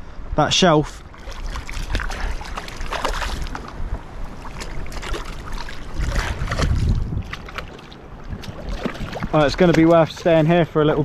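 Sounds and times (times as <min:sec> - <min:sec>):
fish splashing at water surface: 0:01.2 - 0:03.7.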